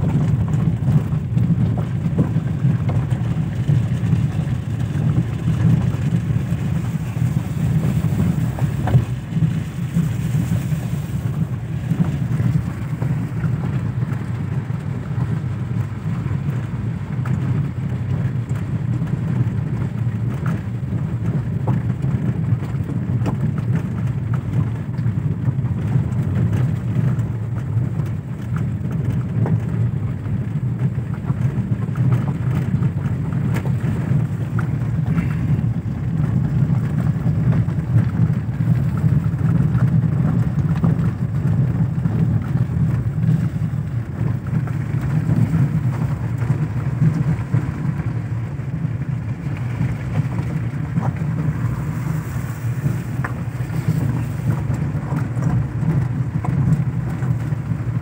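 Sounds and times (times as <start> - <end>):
car engine and tyre rumble: 0.0 - 58.0.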